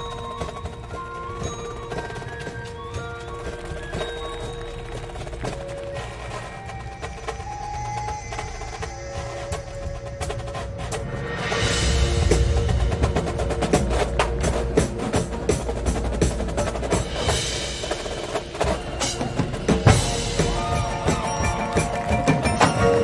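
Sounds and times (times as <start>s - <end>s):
marching drums playing: 0.0s - 23.0s
pitched percussion tones: 0.0s - 23.0s.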